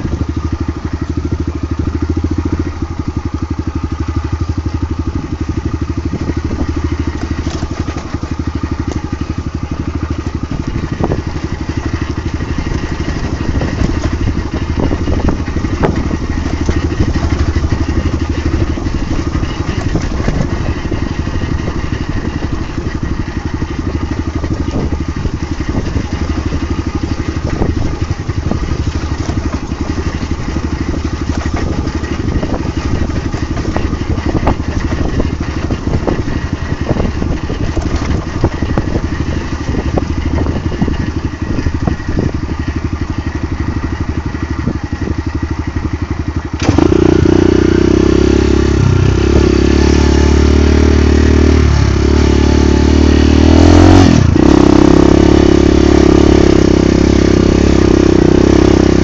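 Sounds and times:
dirt bike engine running: 0:00.0 - 0:59.0
knocks and rattles: 0:05.6 - 0:45.1.

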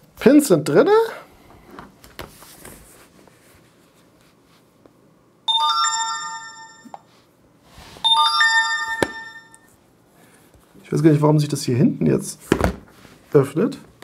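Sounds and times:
electronic bell-like chimes: 0:05.5 - 0:07.0, 0:08.0 - 0:09.7.

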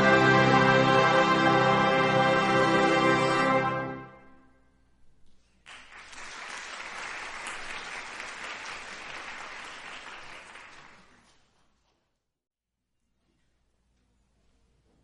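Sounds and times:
audience applauding: 0:05.6 - 0:11.4.

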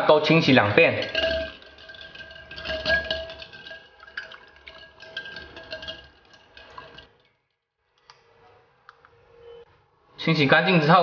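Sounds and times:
water sloshing in a bowl: 0:00.0 - 0:07.6.

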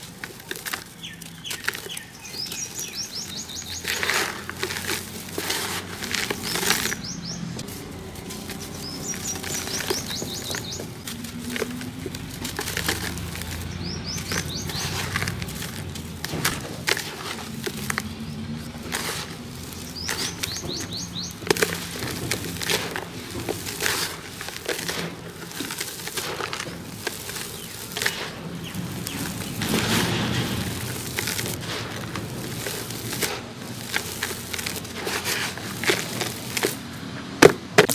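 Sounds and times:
dry cement mix crunching in hands: 0:00.0 - 0:37.9
powder pattering into bucket: 0:00.0 - 0:37.9
bird chirping: 0:00.6 - 0:05.4, 0:06.0 - 0:16.8, 0:17.4 - 0:31.8.

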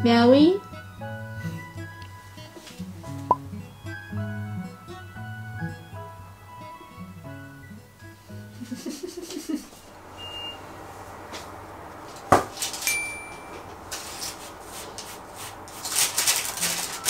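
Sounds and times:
short high beeps: 0:10.2 - 0:10.6.

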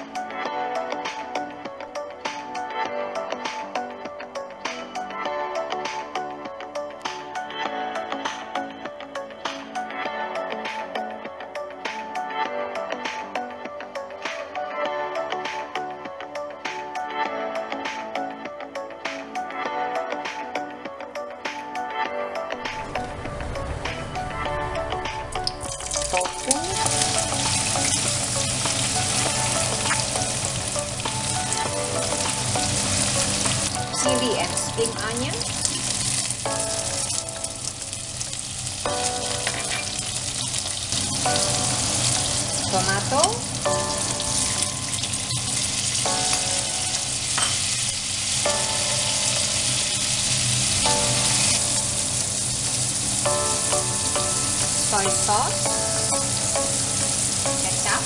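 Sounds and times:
tofu sizzling in hot oil: 0:25.5 - 0:58.0.

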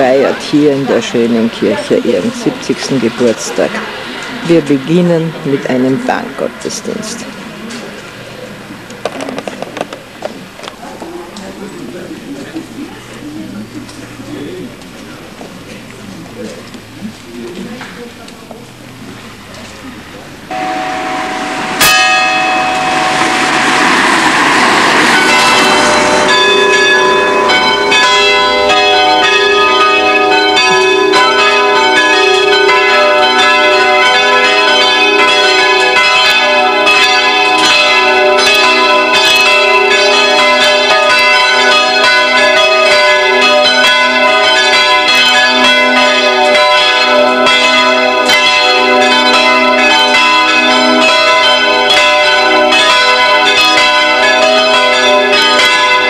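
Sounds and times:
church bells pealing: 0:00.0 - 0:56.0.

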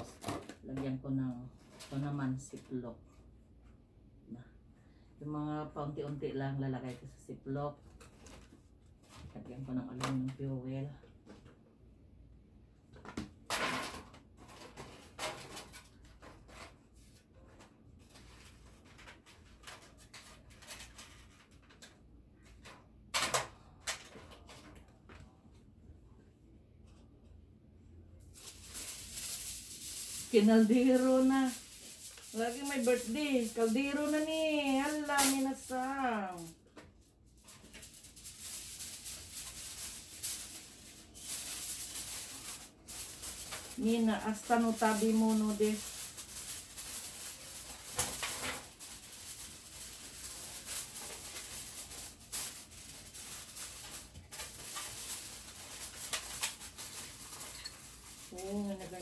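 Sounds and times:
aluminium foil crinkling: 0:14.4 - 0:22.6, 0:28.3 - 0:59.0.

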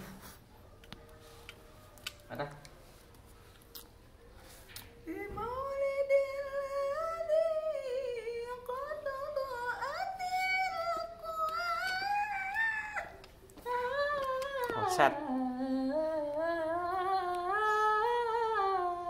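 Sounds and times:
person humming a melody: 0:05.1 - 0:19.0.

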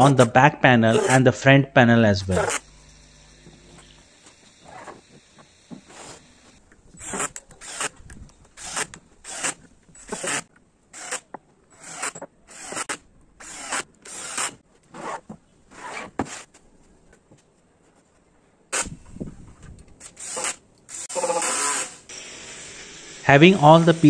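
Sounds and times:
cordless drill driving screws: 0:07.0 - 0:07.9, 0:08.6 - 0:10.4, 0:11.8 - 0:14.6, 0:20.0 - 0:23.0.

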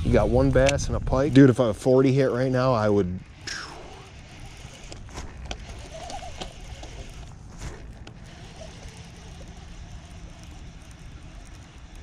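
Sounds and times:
low wind rumble on microphone: 0:00.0 - 0:02.4.

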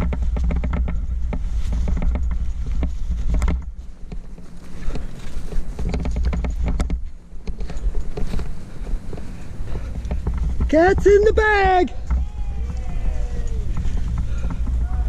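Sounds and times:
cloth bag and gear rustling: 0:01.4 - 0:10.6
low rumble: 0:04.7 - 0:15.0.

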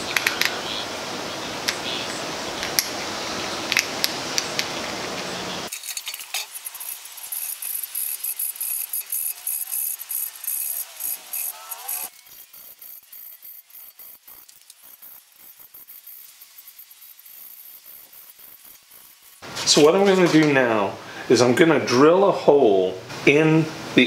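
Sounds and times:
steady background noise: 0:00.0 - 0:24.0
metal gears clicking together: 0:05.7 - 0:16.1.

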